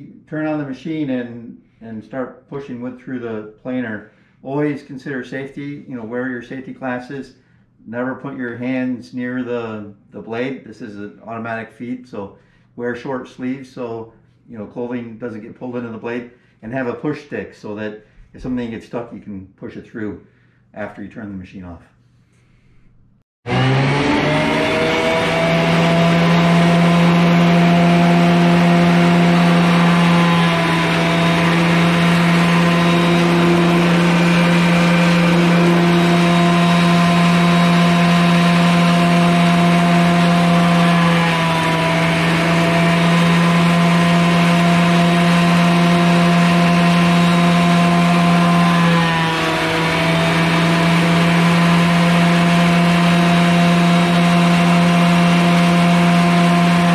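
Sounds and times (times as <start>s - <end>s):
thickness planer whining: 23.4s - 56.9s.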